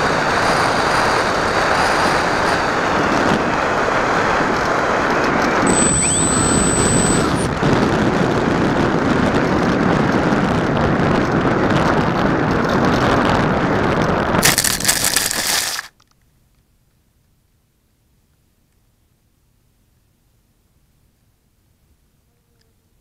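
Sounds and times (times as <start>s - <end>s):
wind rush on microphone: 0.0s - 15.9s.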